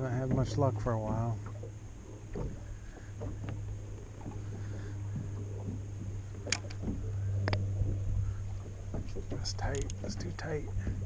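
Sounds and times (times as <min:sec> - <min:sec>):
steady low hum: 0:00.0 - 0:11.0
water lapping on boat: 0:00.0 - 0:11.0
wind: 0:00.0 - 0:11.0
sharp clicks: 0:06.4 - 0:07.6, 0:09.6 - 0:10.1.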